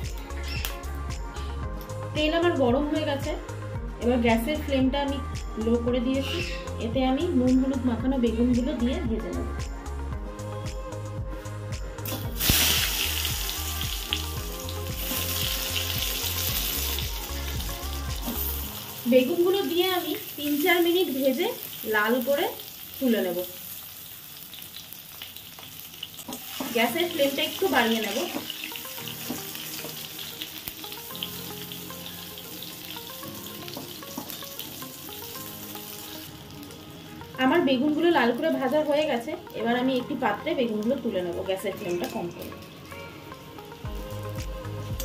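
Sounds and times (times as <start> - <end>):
background music with bass line: 0.0 - 19.2, 42.5 - 45.0
faint background music: 0.0 - 45.0
vegetables sizzling in hot oil: 12.0 - 44.9.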